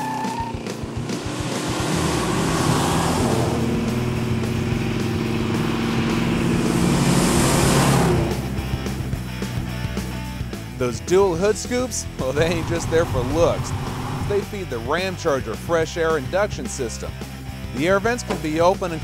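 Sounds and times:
car engine driving past: 0.0s - 9.6s
road noise: 0.0s - 19.0s.

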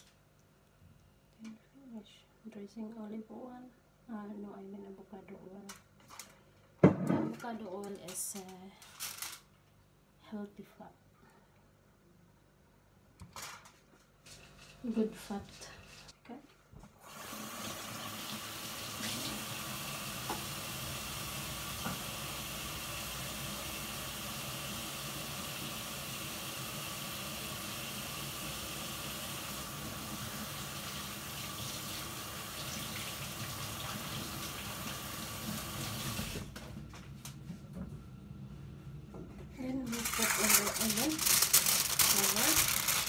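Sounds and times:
tap water running into sink: 17.1s - 36.5s.

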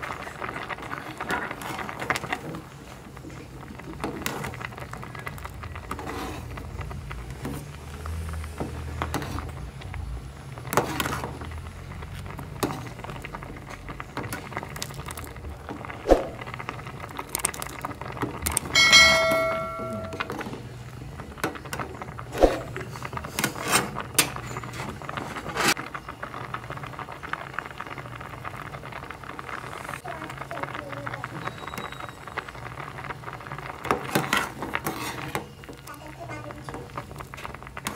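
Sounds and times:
rice boiling: 0.0s - 37.9s
bell-like ding: 18.8s - 20.4s
metal ladle scraping a pot: 23.3s - 25.8s, 34.1s - 35.5s.

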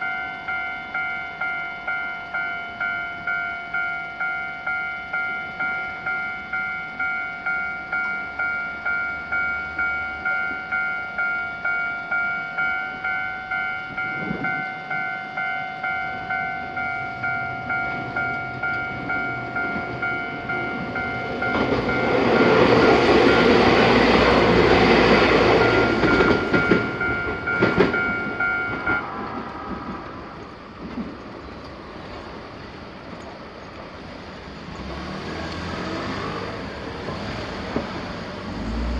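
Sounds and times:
level crossing alarm dinging: 0.0s - 29.1s
street traffic: 0.0s - 38.9s
train wheels on rails: 0.0s - 38.9s.

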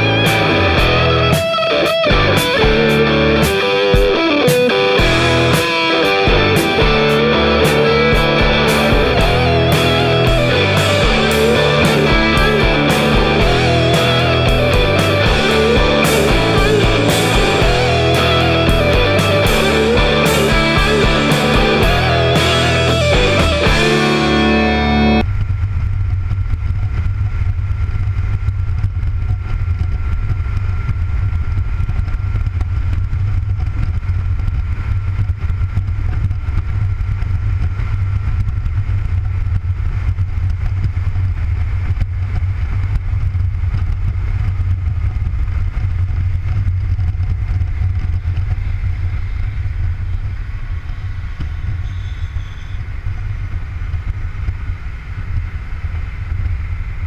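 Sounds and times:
motorcycle engine cruising: 0.0s - 57.0s
wind and road noise: 25.2s - 57.0s.

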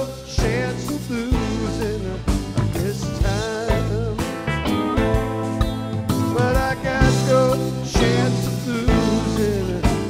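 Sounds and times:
bass guitar: 0.0s - 10.0s
drum beat: 0.4s - 10.0s
lead guitar melody bending in pitch: 4.3s - 8.4s.

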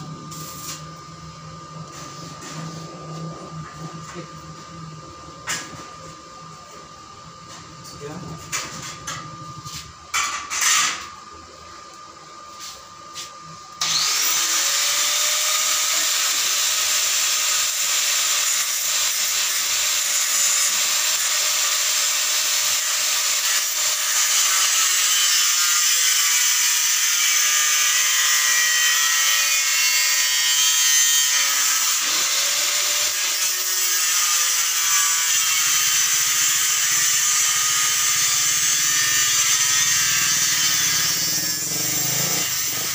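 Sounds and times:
arc welding crackle: 0.3s - 0.9s, 13.8s - 42.9s
angle grinder cutting steel: 13.8s - 42.9s.

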